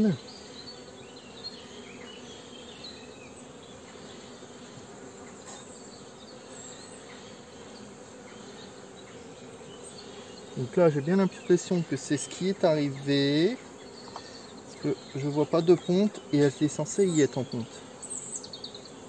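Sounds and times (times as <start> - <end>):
bees buzzing: 0.0 - 19.0.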